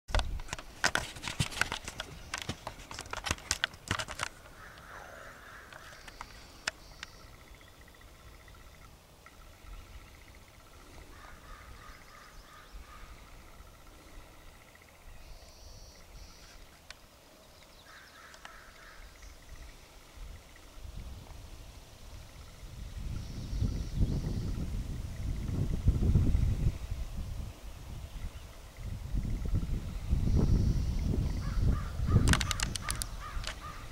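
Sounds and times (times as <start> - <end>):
birds singing: 4.3 - 20.8, 22.3 - 25.7, 27.4 - 33.9.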